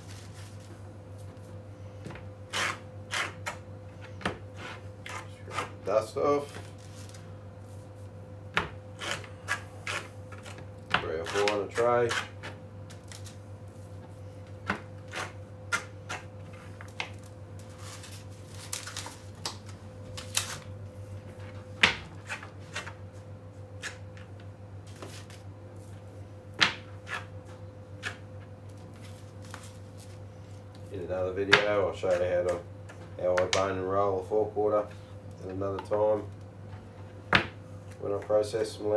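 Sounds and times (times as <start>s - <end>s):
steady low hum: 0.0s - 38.9s
scraper scraping meat: 2.5s - 3.6s, 4.5s - 5.8s, 8.9s - 10.6s, 11.2s - 13.3s, 15.0s - 16.8s.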